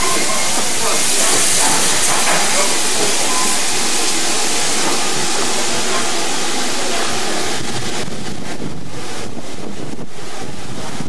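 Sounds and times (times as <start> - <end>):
steam locomotive hissing: 0.0 - 11.0.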